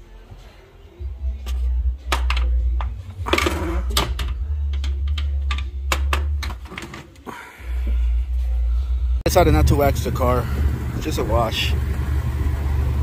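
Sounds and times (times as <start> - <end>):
steady low hum: 7.3 - 13.0.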